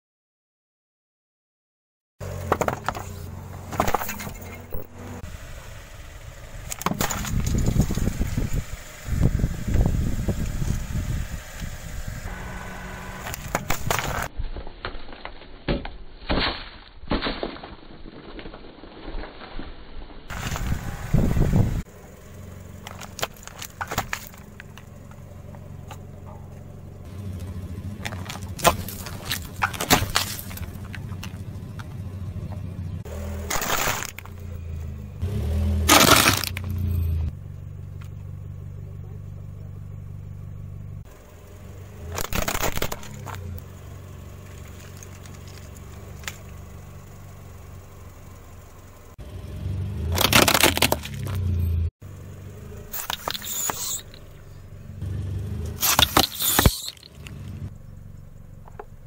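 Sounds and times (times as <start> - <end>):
car engine humming: 2.2 - 14.3, 20.3 - 59.0
plastic crackling under car tyre: 22.8 - 26.0, 27.4 - 32.1, 44.3 - 46.8, 50.2 - 51.4
tyre crushing drink cans: 28.0 - 31.3, 33.4 - 34.4, 35.8 - 36.7, 50.1 - 51.4, 55.8 - 57.3.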